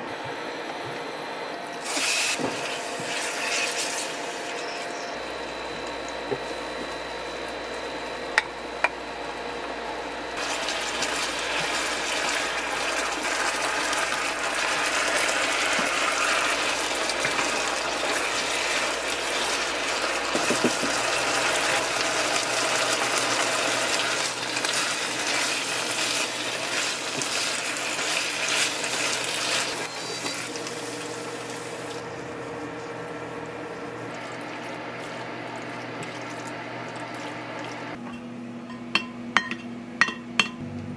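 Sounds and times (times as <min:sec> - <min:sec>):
meat and vegetables sizzling in pan: 0:10.4 - 0:31.9.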